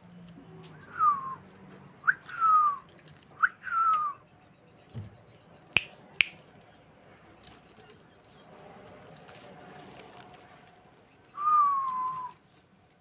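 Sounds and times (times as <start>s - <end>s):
whistled call: 0.8s - 4.2s, 11.4s - 12.4s.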